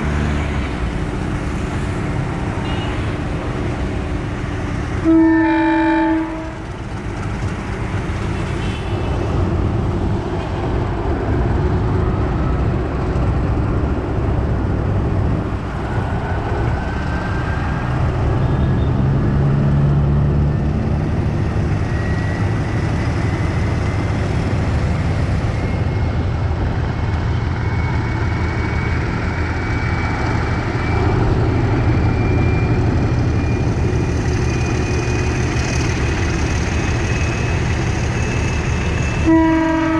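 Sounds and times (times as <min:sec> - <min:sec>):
diesel locomotive engine under load: 0:00.0 - 0:39.9
train horn blast: 0:05.0 - 0:06.6, 0:39.2 - 0:39.9.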